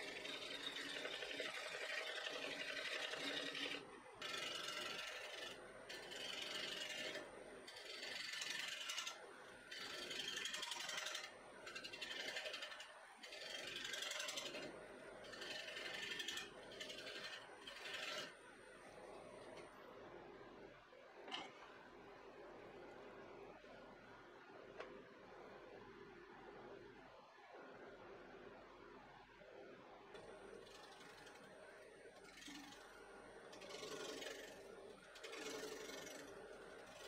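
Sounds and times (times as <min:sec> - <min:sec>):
wood lathe spinning: 0:00.0 - 0:18.4, 0:30.2 - 0:37.0
gouge scraping wood: 0:15.3 - 0:18.4, 0:33.6 - 0:36.3.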